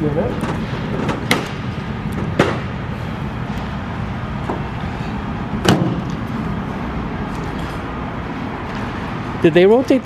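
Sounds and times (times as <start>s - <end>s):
workshop hum and hiss: 0.0s - 10.0s.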